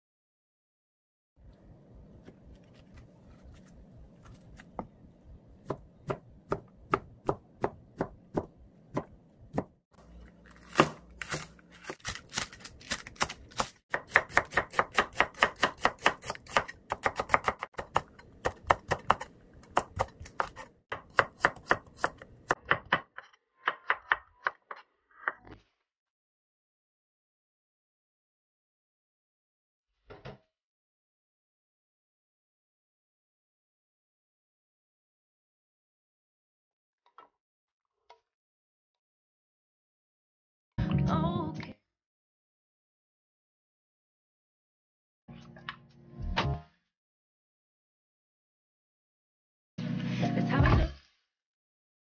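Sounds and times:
knife striking cutting board: 10.6s - 24.7s.

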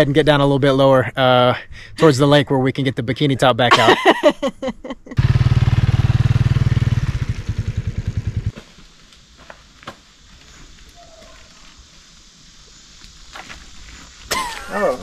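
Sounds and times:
motorcycle engine passing: 5.2s - 8.6s.

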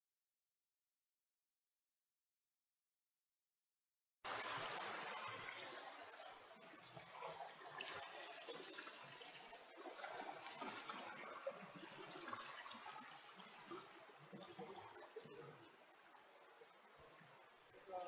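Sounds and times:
shallow river water rushing: 4.3s - 17.7s
water trickles and drips: 4.3s - 18.0s.

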